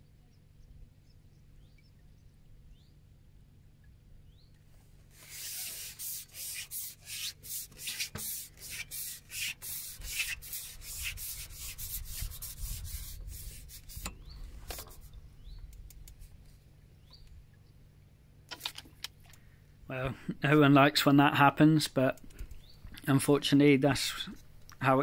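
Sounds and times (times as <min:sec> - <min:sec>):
fishing pole sections scraping: 0:05.1 - 0:15.2.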